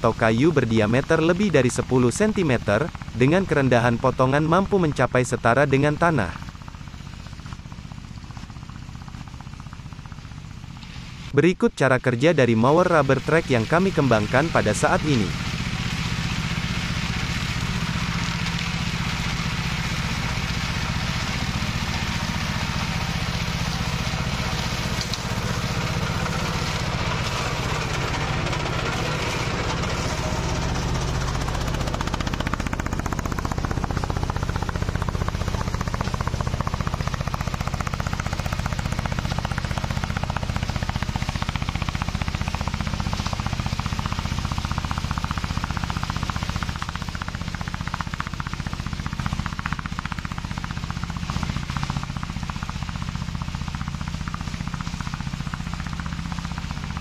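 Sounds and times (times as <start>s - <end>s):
mower engine running: 0.0s - 57.0s
cutter clattering through brush: 13.4s - 52.9s.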